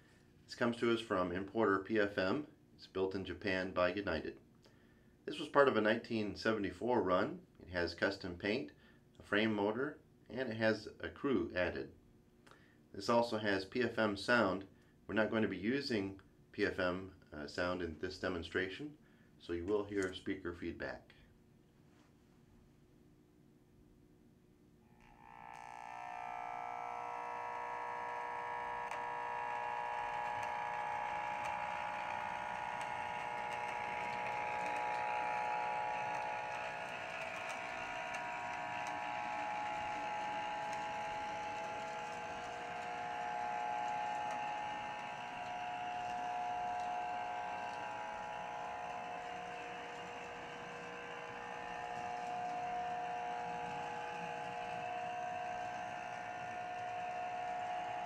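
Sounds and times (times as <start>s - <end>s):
buzzing speaker whine: 24.8s - 58.0s
model train motor whirring: 24.9s - 58.0s.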